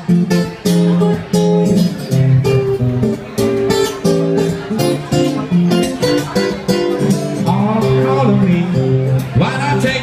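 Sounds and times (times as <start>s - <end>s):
acoustic guitars strumming: 0.0s - 10.0s.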